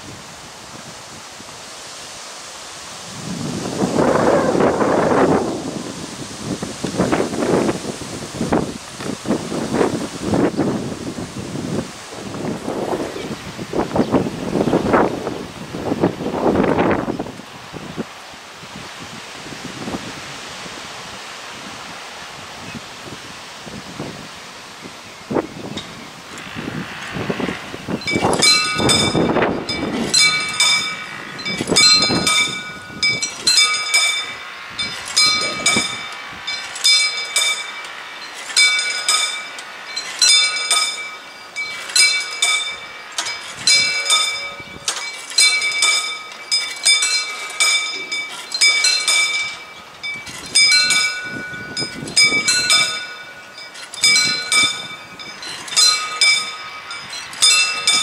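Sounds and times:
railroad crossing bells ringing: 0:25.3 - 0:58.0.

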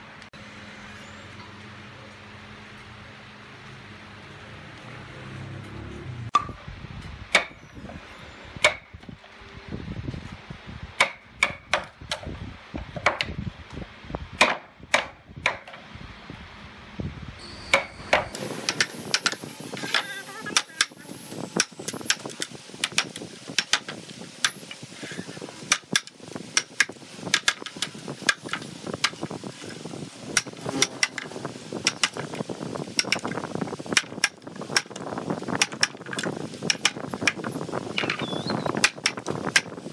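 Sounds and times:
mallet striking wood chisel: 0:11.0 - 0:12.2, 0:14.4 - 0:15.8.

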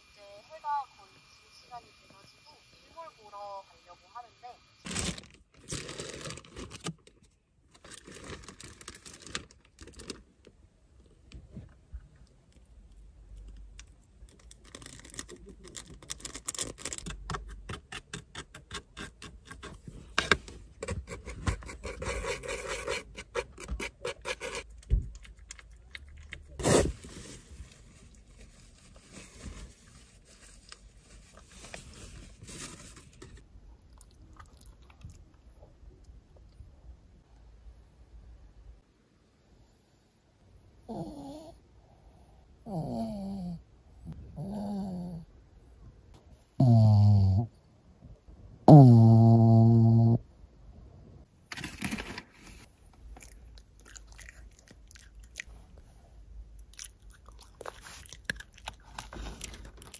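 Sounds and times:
plastic packaging rustling: 0:04.8 - 0:10.3, 0:14.3 - 0:17.3, 0:26.6 - 0:33.4, 0:51.5 - 0:52.8.

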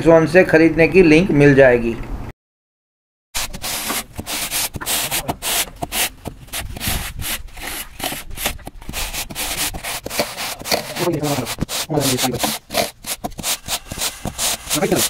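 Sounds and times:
straight edge scraping wet mortar: 0:03.4 - 0:15.0.

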